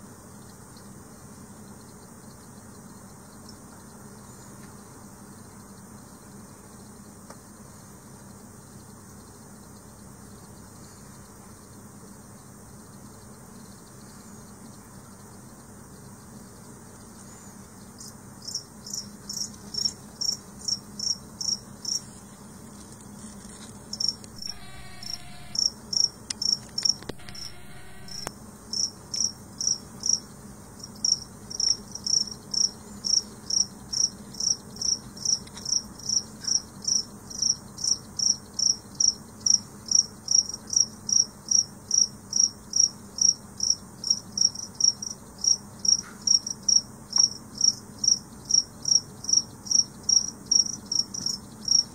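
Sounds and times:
cricket chirping: 0:00.0 - 0:51.9
bursts of noise: 0:24.4 - 0:25.6, 0:27.0 - 0:28.3.

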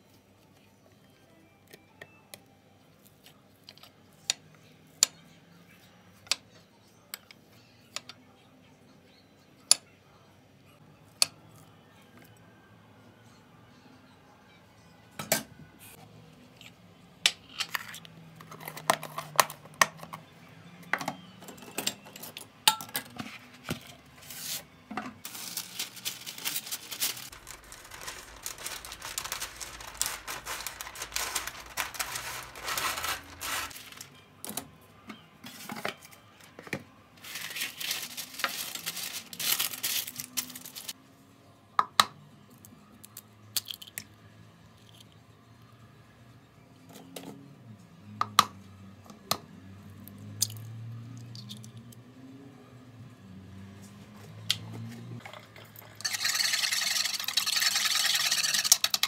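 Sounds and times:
baking paper rustling: 0:23.3 - 0:34.1, 0:37.2 - 0:41.0, 0:56.0 - 0:59.0
scissors cutting paper: 0:25.6 - 0:34.0.

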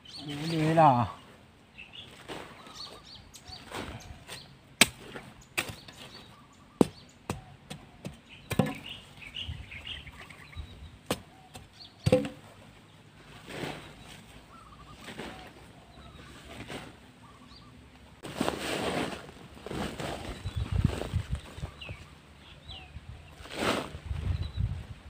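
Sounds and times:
hoe chopping into dry soil: 0:03.7 - 0:09.0, 0:11.0 - 0:12.5.

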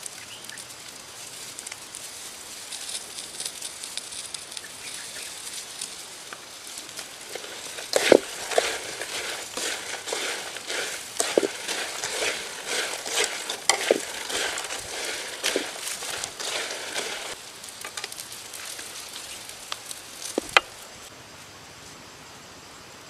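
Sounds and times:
food sizzling in oil: 0:00.0 - 0:21.0
spatula scraping a wok: 0:06.8 - 0:17.4.

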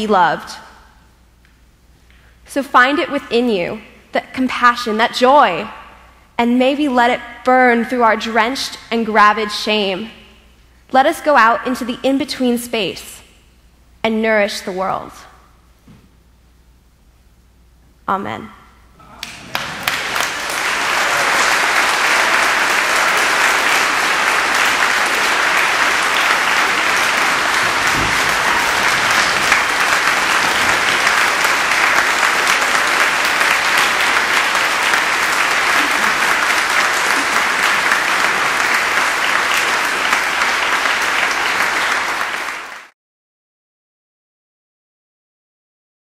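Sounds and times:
congregation applauding: 0:19.1 - 0:42.9.

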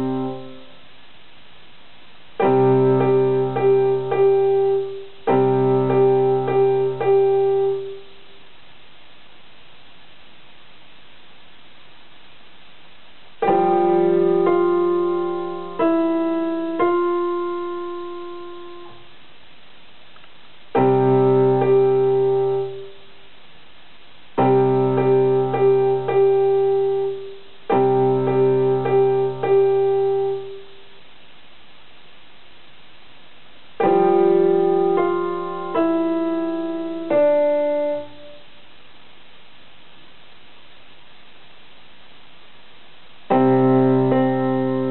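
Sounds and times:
electronic keyboard chords: 0:00.0 - 0:00.8, 0:02.4 - 0:08.2, 0:13.4 - 0:19.1, 0:20.7 - 0:23.0, 0:24.4 - 0:30.8, 0:33.8 - 0:38.5, 0:43.3 - 0:44.9.

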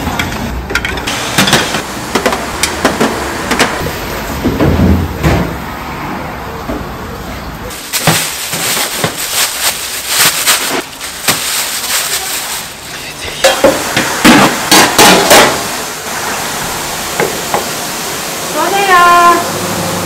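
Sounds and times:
plastic wrap crinkling: 0:07.7 - 0:13.2.

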